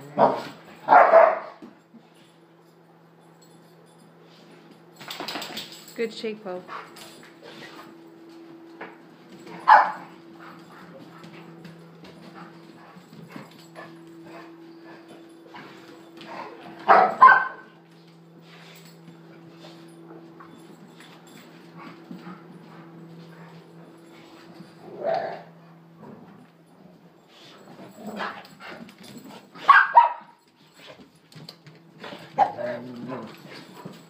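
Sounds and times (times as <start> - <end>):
steady low hum: 0.0 - 29.6
dog barking: 0.2 - 1.6, 9.6 - 10.1, 16.8 - 17.7, 29.6 - 30.4
dogs scuffling: 3.4 - 6.0, 6.6 - 34.0
dogs yipping: 9.6 - 10.1, 16.9 - 17.7, 29.6 - 30.4.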